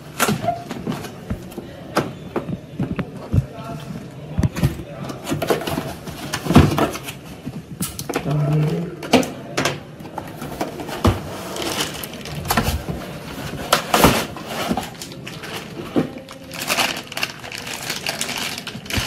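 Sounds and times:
plastic bag crinkling: 11.5 - 19.0.

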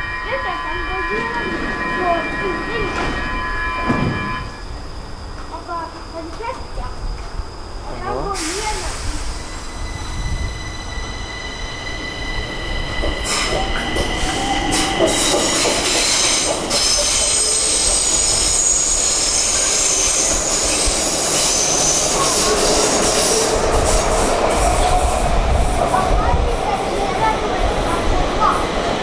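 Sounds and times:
metro train high whine: 0.0 - 29.0
wheels running on rail: 0.0 - 29.0
high-pitched wheel squeal: 9.3 - 23.5.

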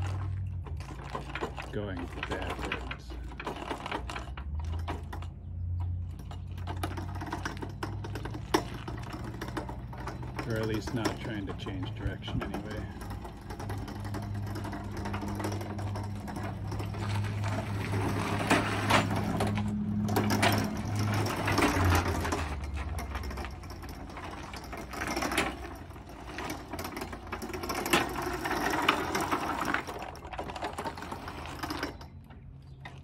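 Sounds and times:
roller chains rattling: 0.0 - 33.0.

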